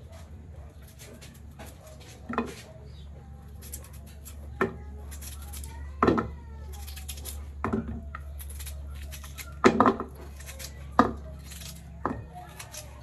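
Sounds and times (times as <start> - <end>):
steady low hum: 0.0 - 13.0
knife cutting vegetable: 3.5 - 13.0.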